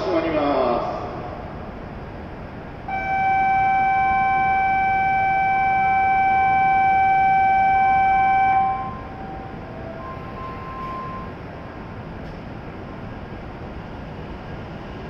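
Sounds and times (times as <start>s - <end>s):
electronic warning buzzer: 2.9s - 11.4s.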